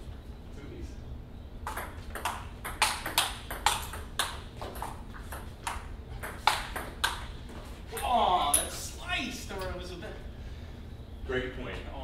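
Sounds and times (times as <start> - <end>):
table tennis ball clicking: 1.6 - 7.3.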